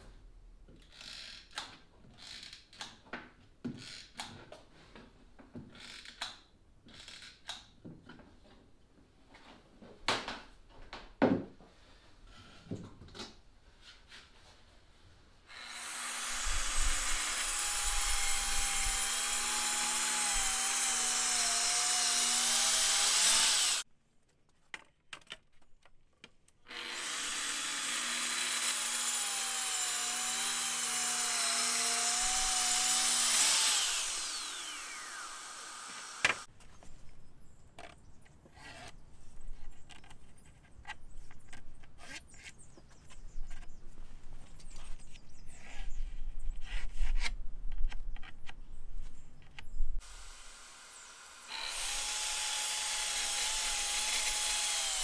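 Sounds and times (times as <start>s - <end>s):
track saw cutting plywood: 15.5s - 23.8s, 26.7s - 36.5s, 50.0s - 55.0s.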